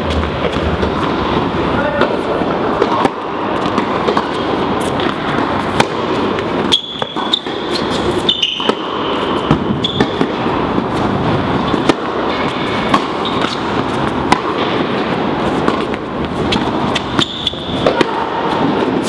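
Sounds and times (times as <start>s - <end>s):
balls bouncing on hard court: 0.0s - 19.0s
steady rushing background noise: 0.0s - 19.0s
tennis balls struck by racquets: 0.0s - 19.0s
shoe squeaks: 6.6s - 10.2s, 12.7s - 13.6s, 16.4s - 17.8s.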